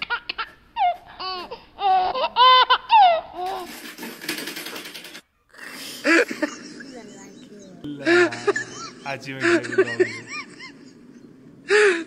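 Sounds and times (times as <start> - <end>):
child giggling: 6.0 - 10.8.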